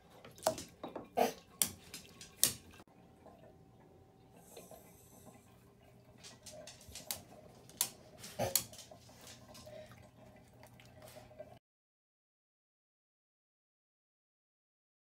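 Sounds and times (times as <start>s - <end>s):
water pops and splashes: 0.2s - 2.8s.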